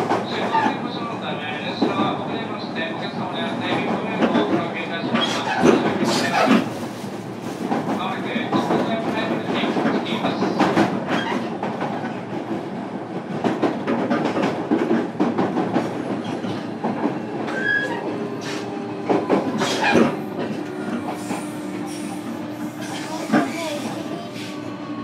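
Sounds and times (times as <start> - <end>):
train wheels rumbling: 1.6 - 25.0.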